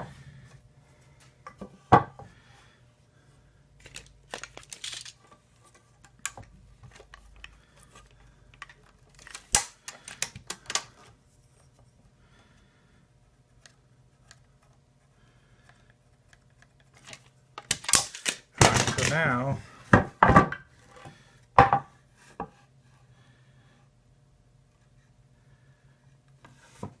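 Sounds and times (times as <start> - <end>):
tools and wood knocking on workbench: 1.5 - 2.3, 19.9 - 20.6, 21.6 - 22.5.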